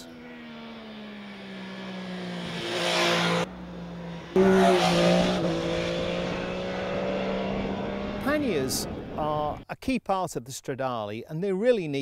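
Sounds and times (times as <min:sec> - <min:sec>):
motorcycle engine at speed: 0:00.0 - 0:09.2.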